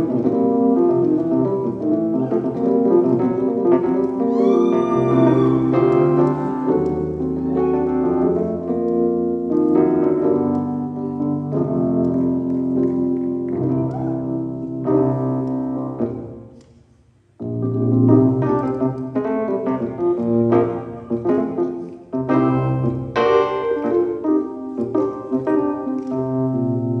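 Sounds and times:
piano slow sustained chords: 0:00.0 - 0:16.4.

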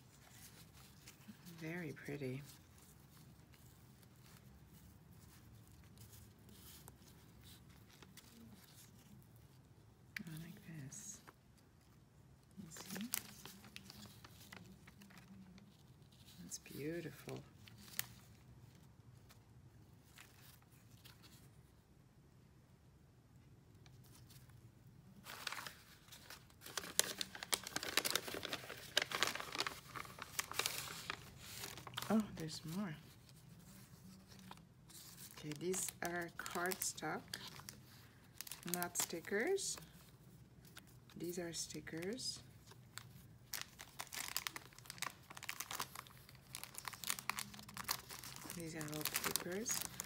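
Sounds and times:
bubble wrap crinkling: 0:00.0 - 0:12.0, 0:12.6 - 0:21.8, 0:23.9 - 0:50.0
stickers rustling and ticking: 0:40.6 - 0:50.0.

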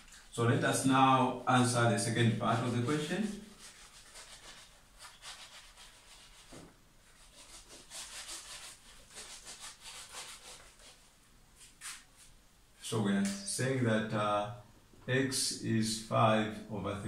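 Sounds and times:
eraser scrubbing whiteboard: 0:01.6 - 0:12.3.

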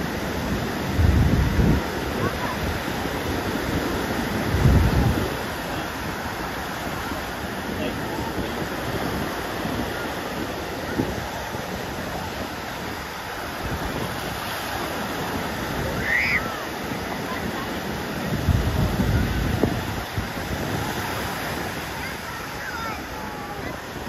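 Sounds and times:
surf waves washing up beach: 0:00.0 - 0:24.0
wind buffeting microphone: 0:00.0 - 0:24.0
brief high cry: 0:16.0 - 0:16.7.

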